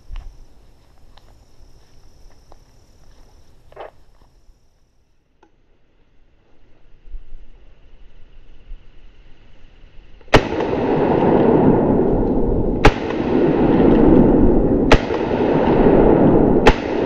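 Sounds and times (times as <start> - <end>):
shotgun blasts: 10.3 - 12.2, 12.8 - 17.0.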